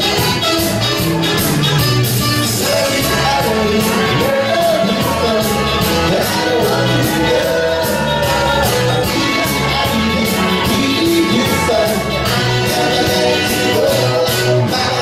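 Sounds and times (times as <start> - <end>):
music with steady beat: 0.0 - 15.0
man singing into a microphone: 2.4 - 15.0.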